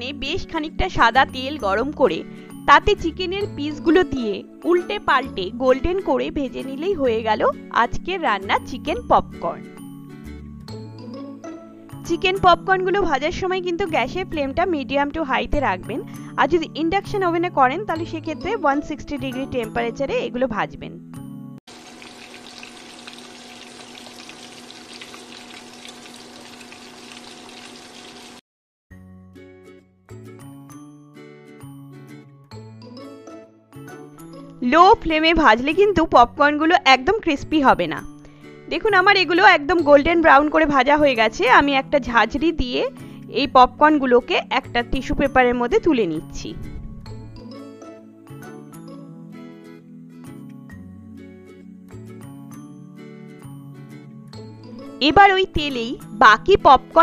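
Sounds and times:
music: 0.0 - 57.0
chicken frying in oil: 21.7 - 28.4.

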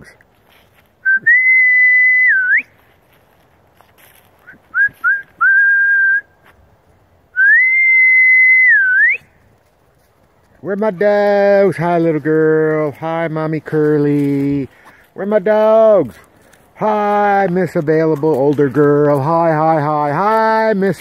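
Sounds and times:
person whistling: 1.0 - 2.7, 4.4 - 6.3, 7.4 - 9.2.

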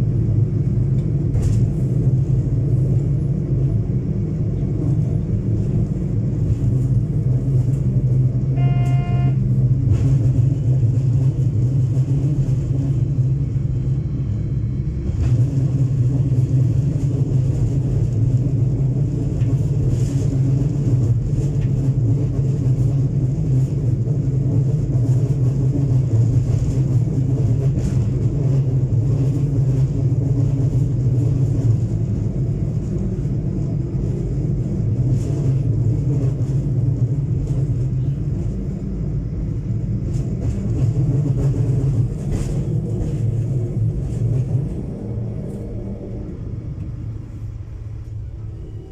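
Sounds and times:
diesel engine drone: 0.0 - 48.9
wheels rumbling on track: 0.0 - 48.9
short high horn toot: 8.6 - 9.4.

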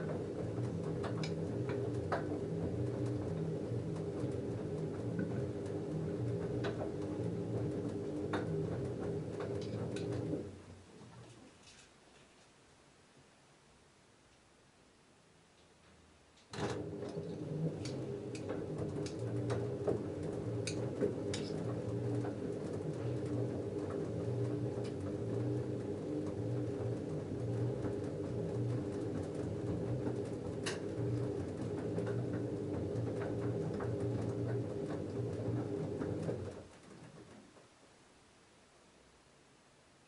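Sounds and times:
washing machine motor hum: 0.0 - 11.4, 16.5 - 37.6.

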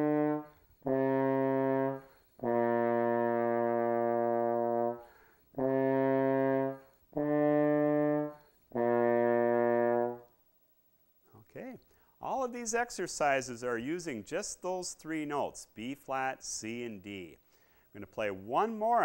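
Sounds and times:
trombone sustained notes: 0.0 - 10.3.

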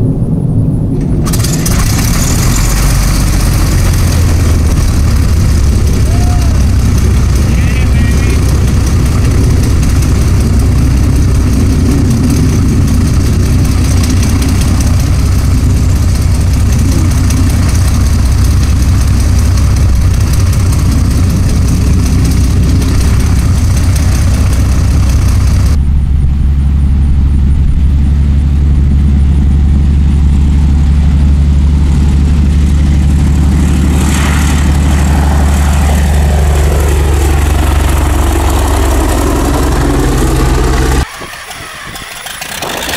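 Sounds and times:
airplane passing overhead: 0.0 - 42.9
aircraft piston engine running: 0.9 - 42.9.

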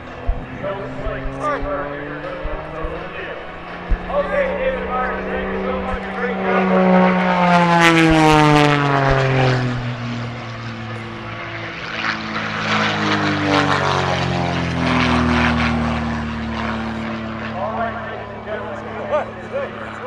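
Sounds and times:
propeller airplane engine drone: 0.0 - 20.0.

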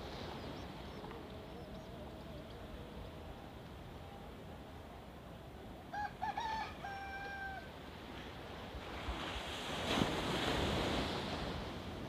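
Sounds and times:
rooster crowing: 5.9 - 7.7
wave breaking on shore: 8.7 - 12.0.

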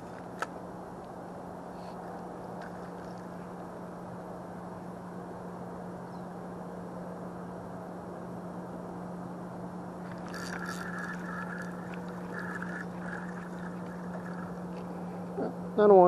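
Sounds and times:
steady hiss and low hum: 0.0 - 16.0
fishing reel whirring and clicking: 10.0 - 14.8.

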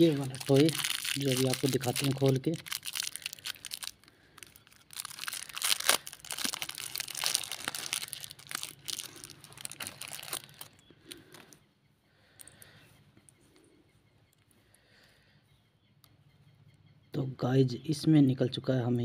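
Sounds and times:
plastic wrapper crinkling: 0.0 - 11.5.

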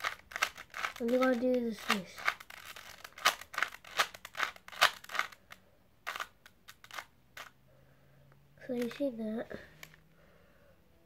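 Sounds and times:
puzzle cube turning clicks: 0.0 - 7.6, 8.8 - 9.0.

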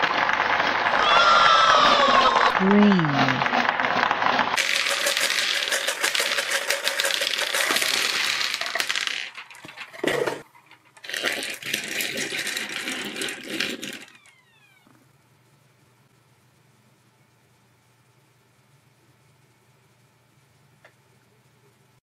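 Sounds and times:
small hard balls clattering: 1.8 - 14.2.

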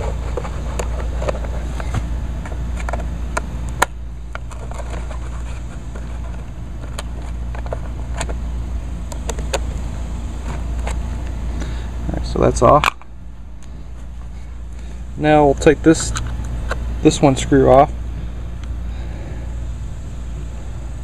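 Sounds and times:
low background noise: 0.0 - 21.0.

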